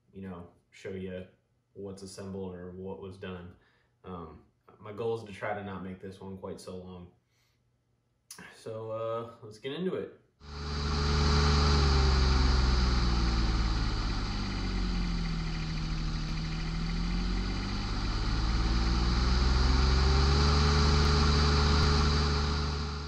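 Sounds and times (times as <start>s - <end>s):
vehicle engine running: 10.5s - 23.0s.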